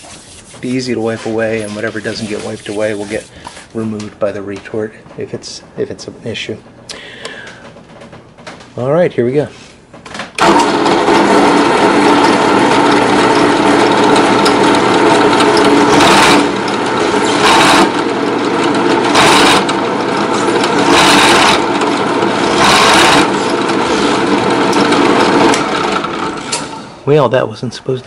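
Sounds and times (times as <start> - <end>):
drill press motor: 10.4 - 27.0
drill bit scraping metal: 11.5 - 26.6.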